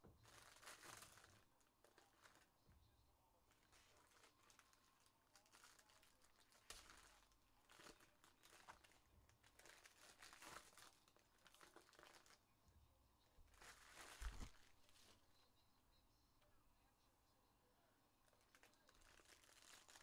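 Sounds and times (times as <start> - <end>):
foil wrappers crinkling: 0.2 - 2.5, 3.5 - 12.4, 13.4 - 15.2, 18.3 - 20.0
trading cards rustling: 13.6 - 15.2.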